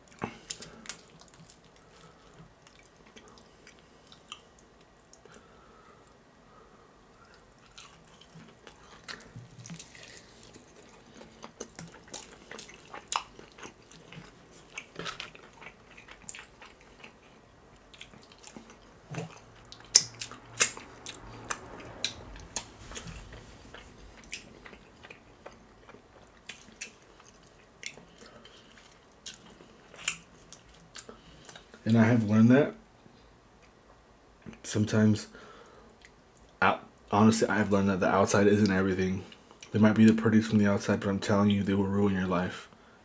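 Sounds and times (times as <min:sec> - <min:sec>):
chewing crisp fried chicken: 0:00.0 - 0:06.2, 0:07.1 - 0:31.8.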